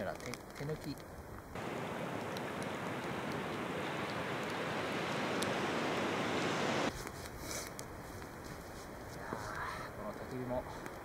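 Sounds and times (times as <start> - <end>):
river water rushing: 1.6 - 6.9.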